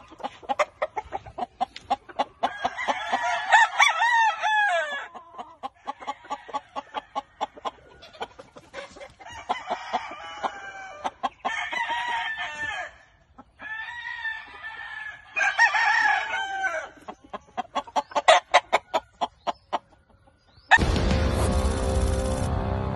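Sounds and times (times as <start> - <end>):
chickens clucking: 0.0 - 20.8
rooster crowing: 2.4 - 5.1, 9.2 - 13.0, 13.6 - 16.9.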